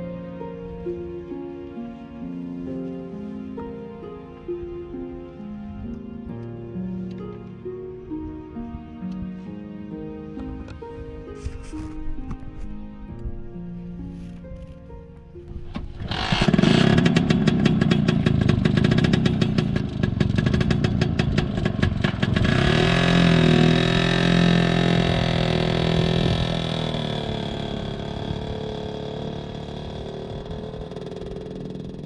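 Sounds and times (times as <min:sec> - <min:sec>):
scooter engine clattering and revving: 0:15.8 - 0:32.0.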